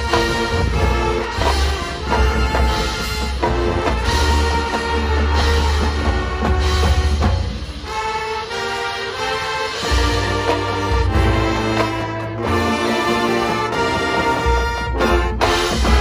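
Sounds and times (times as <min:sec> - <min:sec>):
percussion with deep bass: 0:00.0 - 0:08.1
brass chords: 0:00.0 - 0:16.0.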